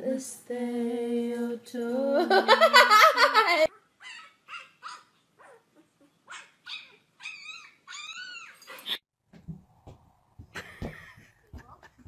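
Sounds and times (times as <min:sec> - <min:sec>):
puppy whimpers and yips: 0:04.0 - 0:09.0.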